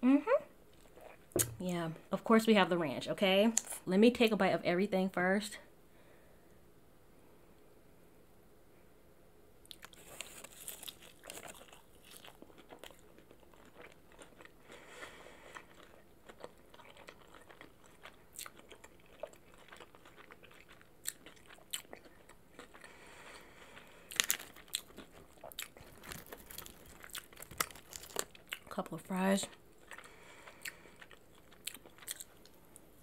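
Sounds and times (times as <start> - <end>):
person chewing: 0.7 - 1.6, 9.6 - 28.7, 29.5 - 33.0
crunchy bites of fried food: 9.6 - 28.7, 29.7 - 32.6.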